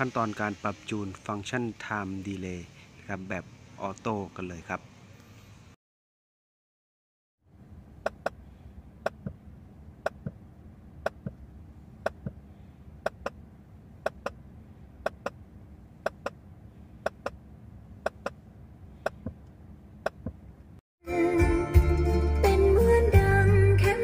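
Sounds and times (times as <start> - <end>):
paired test clicks from speakers: 8.0 - 8.4, 9.0 - 9.4, 10.0 - 10.4, 11.0 - 11.4, 12.0 - 12.4, 13.0 - 13.4, 14.0 - 14.4, 15.0 - 15.4, 16.0 - 16.4, 17.0 - 17.4, 18.0 - 18.4, 19.0 - 20.4.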